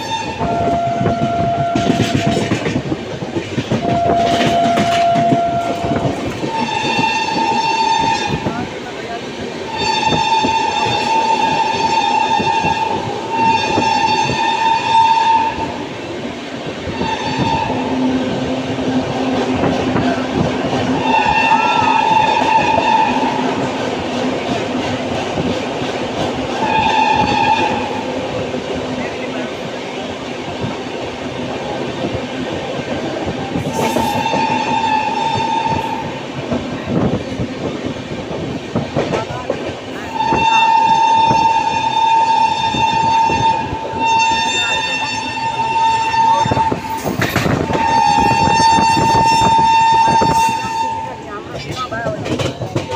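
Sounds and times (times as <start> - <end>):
train wheels squealing on rails: 0.0 - 15.8, 16.9 - 18.1, 19.6 - 23.7, 26.5 - 28.1, 32.7 - 36.2, 39.0 - 52.9
train clattering over rail joints: 0.0 - 52.9
shrill steady tone: 3.7 - 8.6, 9.7 - 15.8, 20.9 - 23.7, 40.0 - 52.1
wheels clacking: 46.0 - 52.9.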